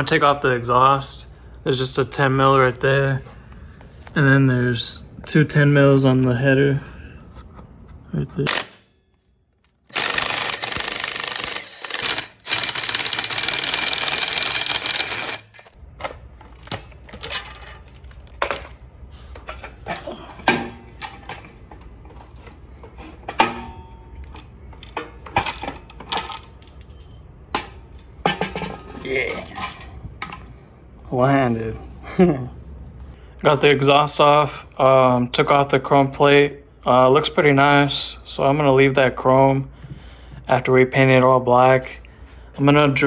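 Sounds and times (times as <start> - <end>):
impact driver hammering bolts: 9.9 - 15.7.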